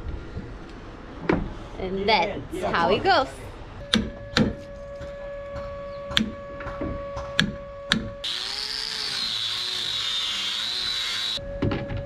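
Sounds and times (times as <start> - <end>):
power tool whining: 8.2 - 11.4.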